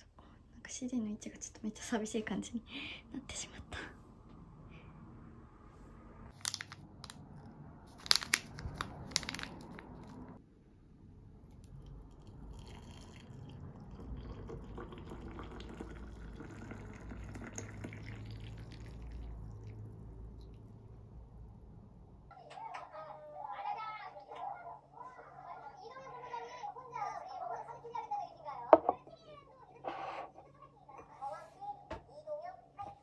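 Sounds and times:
hot water pouring into a mug: 11.7 - 19.9.

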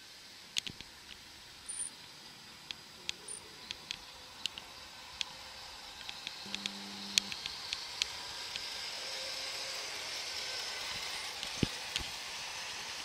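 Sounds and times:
model train rolling on track: 0.0 - 6.5, 7.1 - 13.0
sharp clicks: 6.0 - 8.7.

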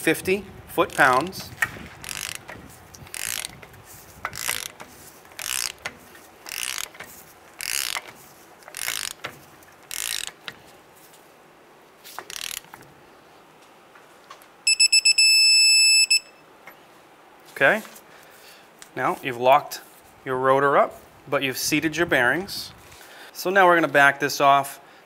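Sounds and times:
ratchet wrench clicking: 0.9 - 10.6, 12.2 - 12.7
electronic beeps: 14.7 - 16.4.

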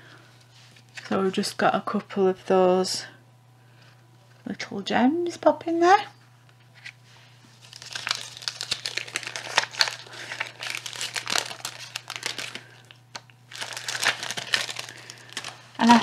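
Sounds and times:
plastic sheet crinkling: 7.6 - 16.0.

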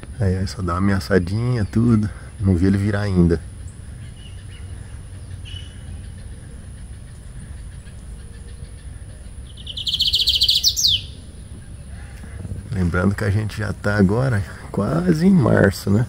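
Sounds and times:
bird singing fast trill: 1.0 - 12.1.

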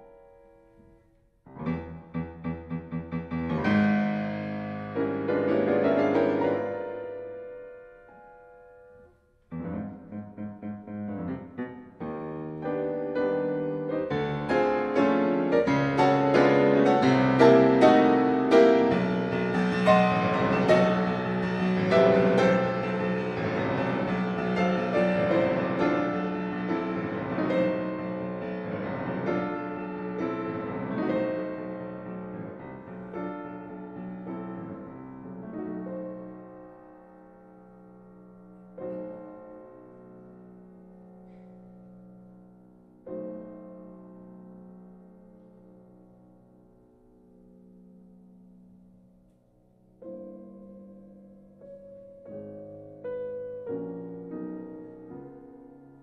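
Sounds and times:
background piano music: 0.0 - 56.0.

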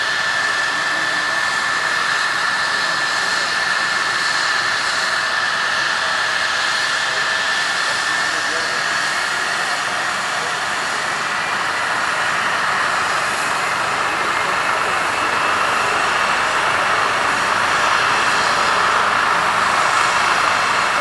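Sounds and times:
helicopter turbine whine and rotor: 0.0 - 21.0.

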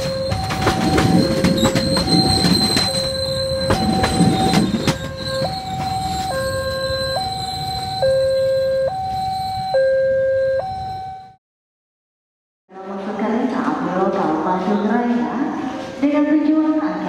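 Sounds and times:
train wheels clattering over rail joints: 0.0 - 6.4
high wheel squeal: 0.0 - 9.7
two-tone crossing warning alarm: 0.0 - 11.4.

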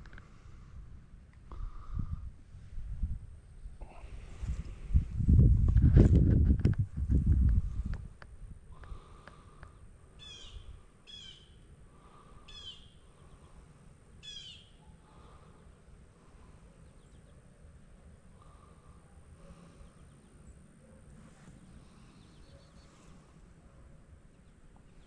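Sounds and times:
faint low background noise: 0.0 - 25.0
bird calling: 9.2 - 15.7.

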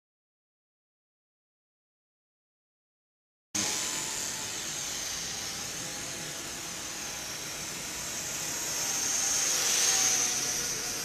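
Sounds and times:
tiny electric motor whining: 3.6 - 11.0.

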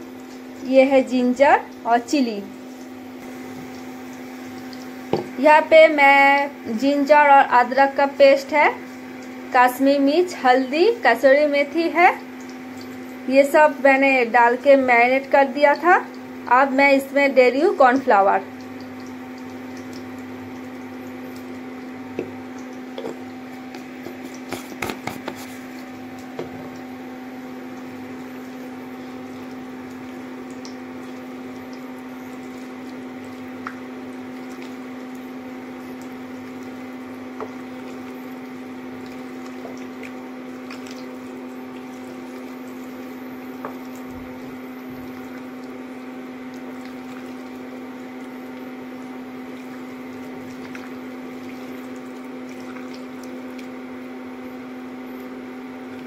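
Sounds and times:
hand squishing chicken in bowl: 23.4 - 26.4, 29.5 - 44.1, 45.1 - 54.3.

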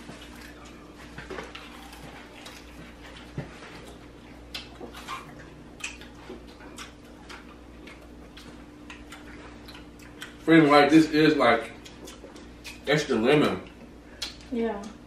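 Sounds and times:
steady low hum: 0.0 - 15.0
wet lip smacks while chewing: 4.5 - 10.4.

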